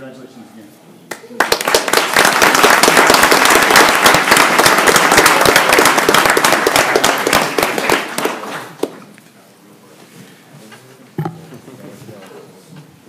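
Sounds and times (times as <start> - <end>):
people applauding: 1.1 - 9.0.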